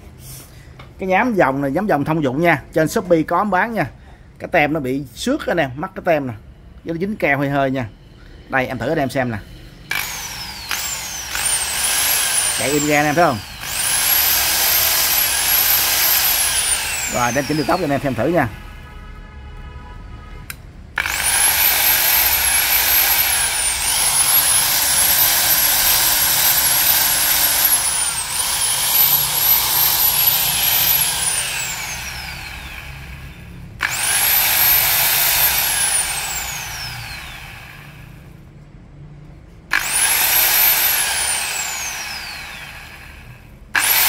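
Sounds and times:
belt sander motor whine: 9.6s - 18.6s, 21.0s - 38.2s, 39.7s - 44.0s.

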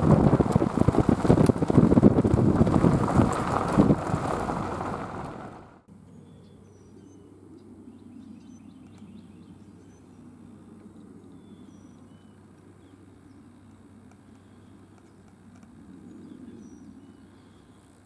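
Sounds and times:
car driving on gravel: 0.0s - 5.9s
gravel ticks: 0.0s - 5.9s
wind buffeting microphone: 0.0s - 5.9s.

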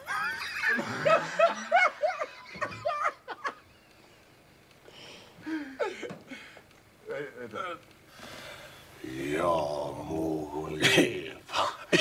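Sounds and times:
breathy hiss: 4.8s - 6.8s, 8.0s - 12.0s
men's hushed vocal sounds: 8.4s - 12.0s.

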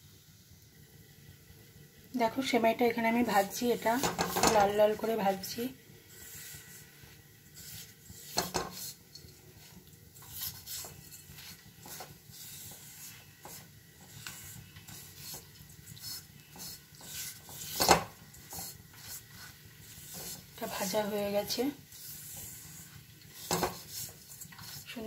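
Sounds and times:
spatula scraping a metal pan: 3.4s - 25.0s.

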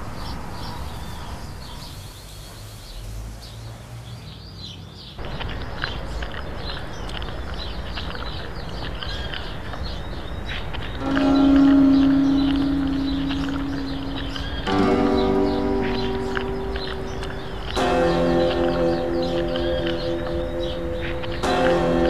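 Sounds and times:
small birds chirping: 0.0s - 22.0s
steady low background hum: 5.2s - 22.0s.

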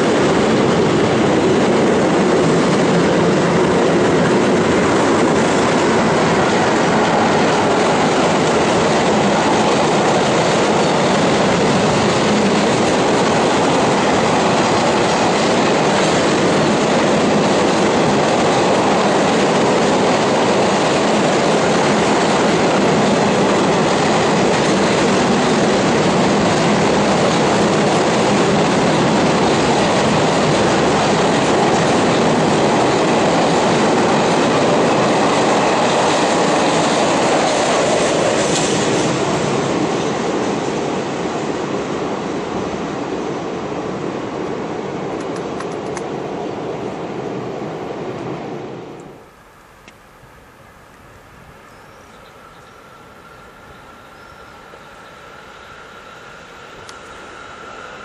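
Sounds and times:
freight train wheels clattering: 0.0s - 40.9s.

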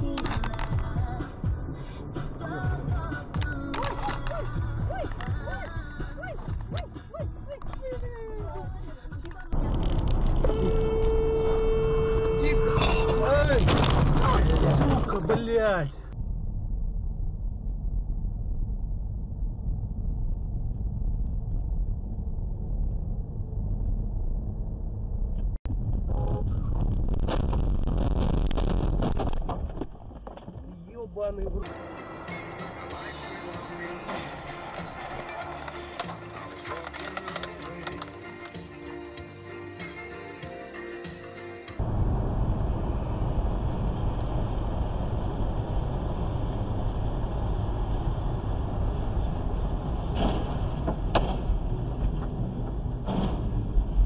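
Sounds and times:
music: 0.0s - 9.6s, 31.6s - 41.8s
car interior road noise: 0.0s - 38.2s, 41.8s - 54.0s.

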